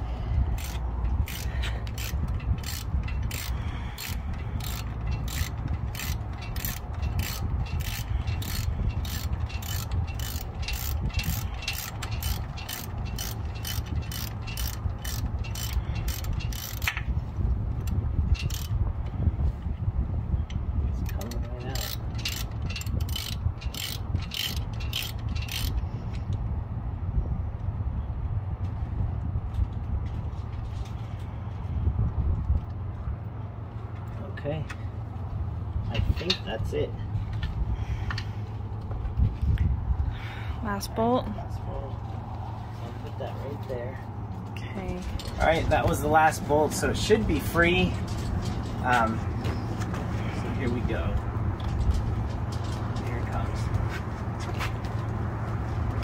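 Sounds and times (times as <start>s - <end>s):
ratchet wrench clicking: 0.4s - 17.0s, 17.8s - 18.8s, 21.0s - 26.4s.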